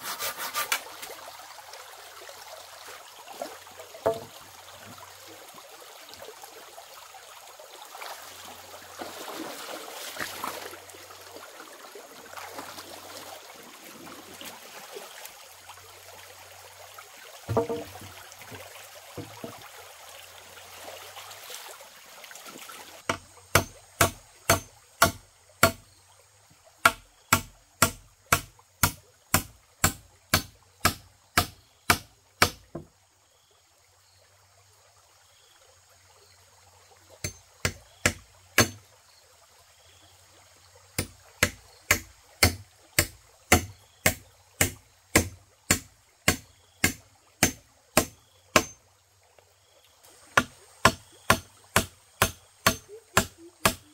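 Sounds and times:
stream water running: 0:00.0 - 0:53.9
hand tool chopping into ground: 0:23.1 - 0:25.8, 0:37.3 - 0:38.8, 0:41.0 - 0:48.8, 0:50.4 - 0:53.9.

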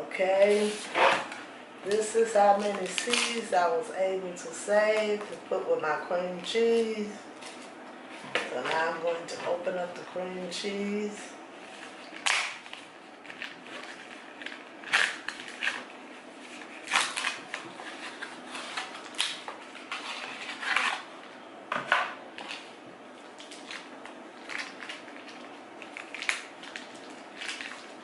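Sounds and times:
crinkling of cardboard and foil: 0:11.7 - 0:21.4, 0:22.3 - 0:28.0.

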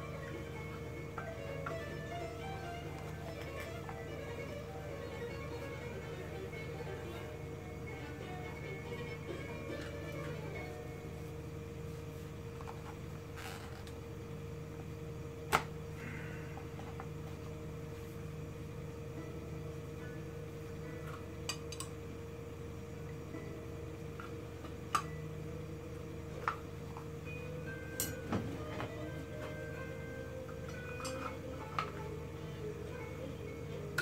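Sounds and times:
gas burner humming: 0:00.0 - 0:34.0.

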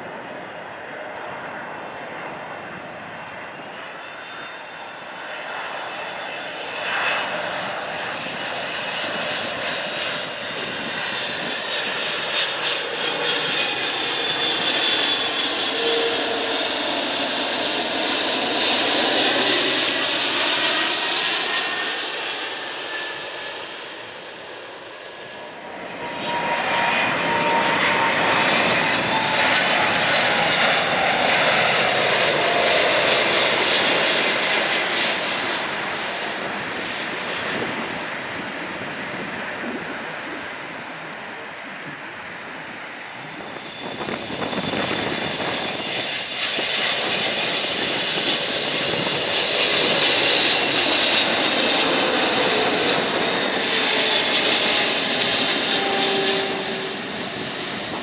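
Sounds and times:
jet engines passing close: 0:00.0 - 0:58.0.

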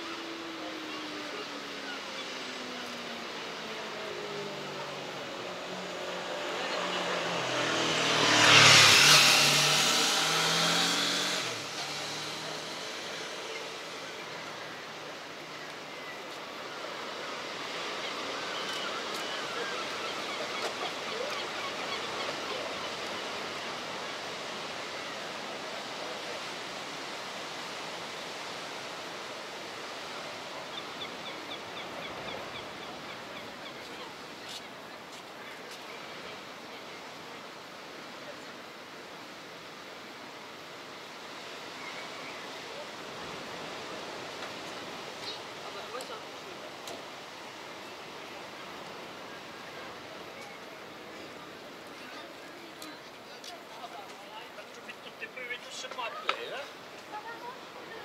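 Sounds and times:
surf: 0:00.0 - 0:58.0
wind: 0:00.0 - 0:58.0
motor scooter passing: 0:03.6 - 0:14.3.

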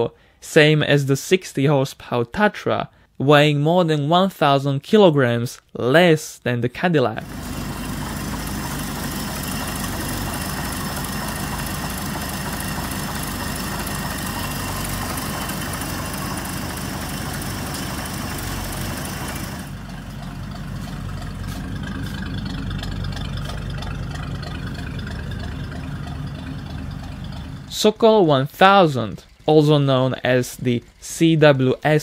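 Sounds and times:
car engine idling: 0:07.2 - 0:31.5.

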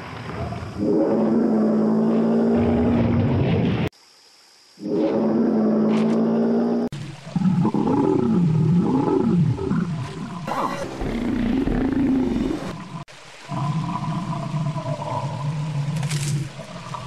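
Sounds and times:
wavering low creature calls: 0:07.6 - 0:15.7.

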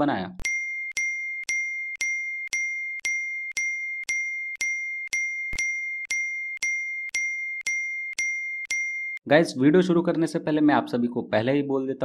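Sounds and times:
bell-like notification ding: 0:00.4 - 0:09.2.

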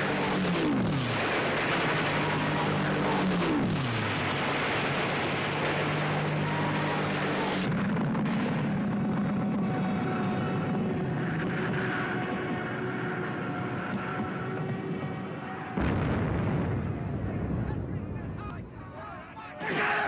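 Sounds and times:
gunfire: 0:00.0 - 0:09.1
engine drone: 0:00.0 - 0:17.3
warplane diving with falling whine: 0:00.0 - 0:20.0.

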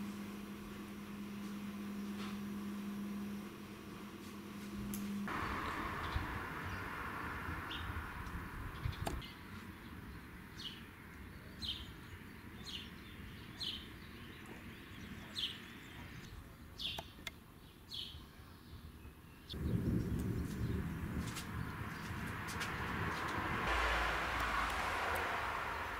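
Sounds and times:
low rumbling noise: 0:04.8 - 0:09.3, 0:19.6 - 0:25.9
bird chirping: 0:05.3 - 0:20.9.

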